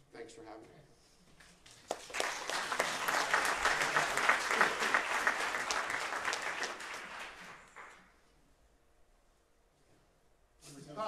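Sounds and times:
audience applauding: 1.7 - 8.1.

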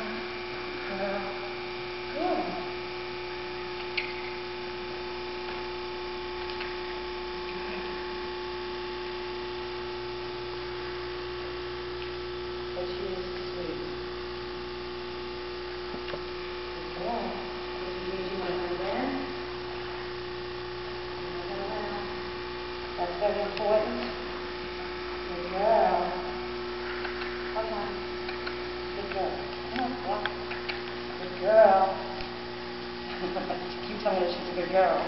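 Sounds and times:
electrical hum: 0.0 - 35.0.

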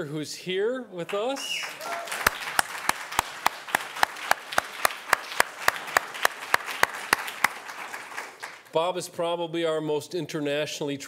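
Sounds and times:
audience applauding: 1.1 - 8.7
close sharp hand claps: 1.1 - 8.7.

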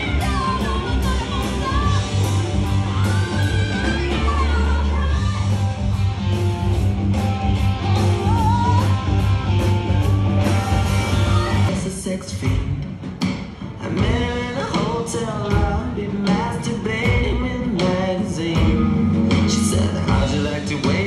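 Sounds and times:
woman singing: 0.0 - 5.8, 7.8 - 9.2, 10.9 - 12.8, 13.8 - 18.9
bass: 0.0 - 21.0
electric guitar: 0.0 - 21.0
steady drum beat: 0.0 - 21.0.

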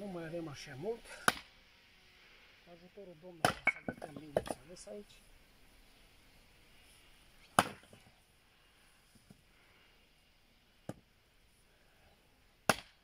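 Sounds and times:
wooden knocks of logs: 3.4 - 4.6, 7.5 - 8.1, 12.7 - 13.0
axe cracking into log: 7.4 - 8.0, 12.7 - 13.0.

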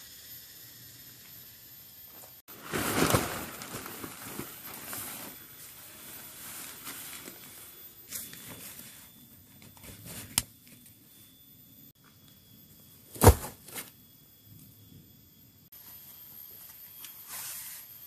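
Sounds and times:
nylon tent flysheet rustling: 2.5 - 9.0.

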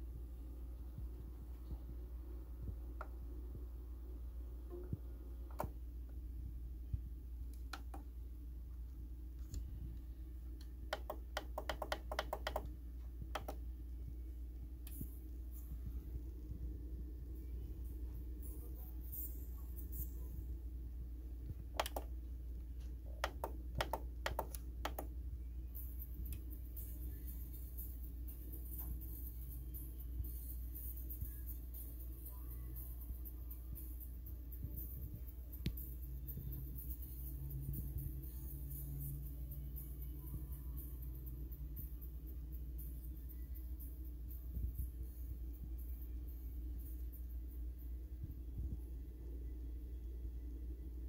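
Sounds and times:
turntable hum: 0.0 - 25.4
turntable low hum: 0.0 - 51.0
vinyl record clicks: 7.4 - 8.1, 21.7 - 22.2.

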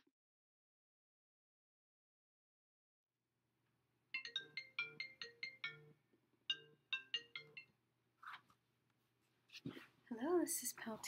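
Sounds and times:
phone ringtone melody: 4.2 - 7.8.

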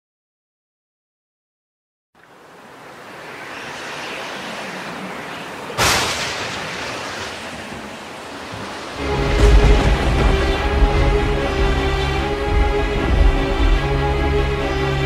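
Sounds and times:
steady rushing noise: 2.3 - 15.0
loud crash: 5.8 - 7.9, 9.0 - 14.0
music with deep bass: 9.0 - 15.0.

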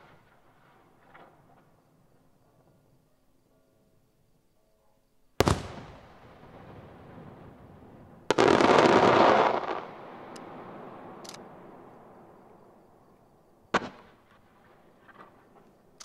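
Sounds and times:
firework shells bursting: 5.4 - 6.4.

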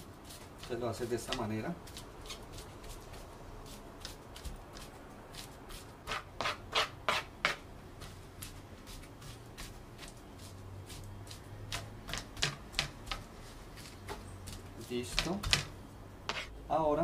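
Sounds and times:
spoon scraping cutting board: 6.0 - 7.6, 16.3 - 16.5.

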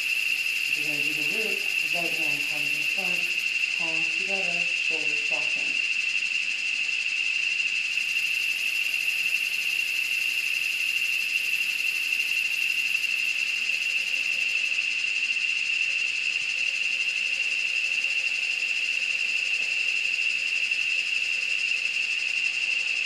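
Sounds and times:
high hiss: 0.0 - 6.0
insect chorus: 0.0 - 23.0.

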